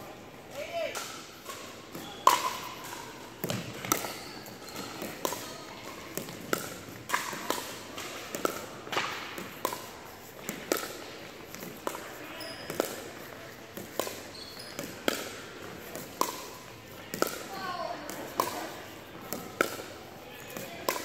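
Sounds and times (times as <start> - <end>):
ball bouncing on hardwood floor: 3.4 - 13.0, 13.8 - 17.5, 18.1 - 18.6
paddles striking plastic ball: 4.8 - 12.1, 12.7 - 21.0.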